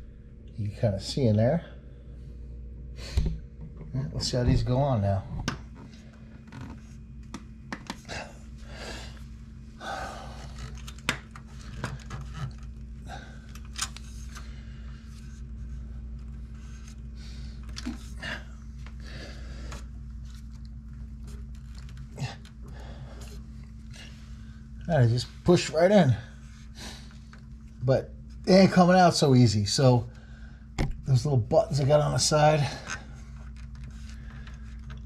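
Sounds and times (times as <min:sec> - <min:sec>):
steady low hum: 0:00.0 - 0:35.0
heavy breathing: 0:08.0 - 0:10.8, 0:13.0 - 0:15.4, 0:17.1 - 0:20.0, 0:22.1 - 0:24.8.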